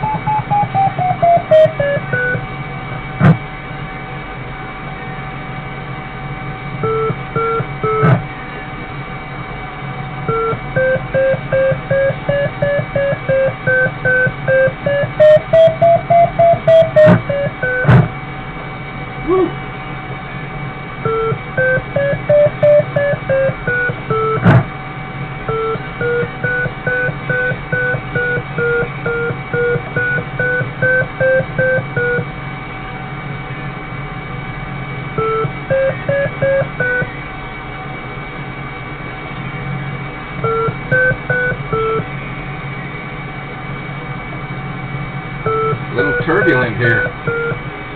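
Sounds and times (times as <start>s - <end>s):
variometer beeping: 0.0s - 2.5s, 6.8s - 8.2s, 10.3s - 18.1s, 21.0s - 24.7s, 25.4s - 32.3s, 35.2s - 37.2s, 40.4s - 42.1s, 45.5s - 47.7s
electrical hum: 0.0s - 47.9s.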